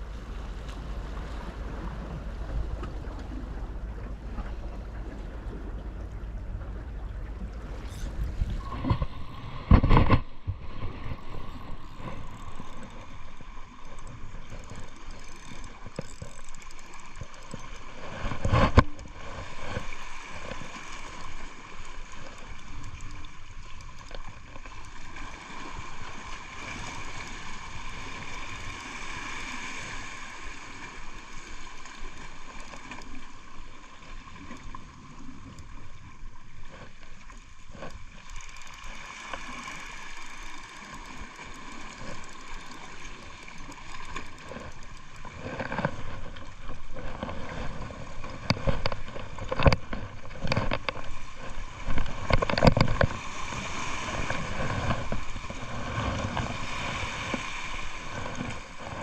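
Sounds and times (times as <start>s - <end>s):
sea water washing among rocks: 7.4s - 59.0s
fishing reel winding: 11.8s - 18.1s, 20.4s - 25.0s, 37.9s - 45.7s.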